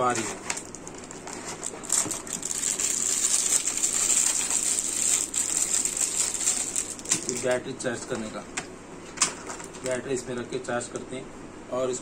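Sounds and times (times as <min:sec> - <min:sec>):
plastic packet crinkling: 0:00.1 - 0:07.6.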